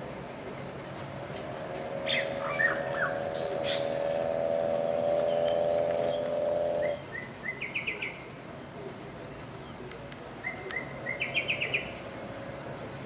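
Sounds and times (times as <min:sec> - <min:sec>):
loud steady drone: 0:00.0 - 0:07.5
bird singing: 0:00.0 - 0:13.0.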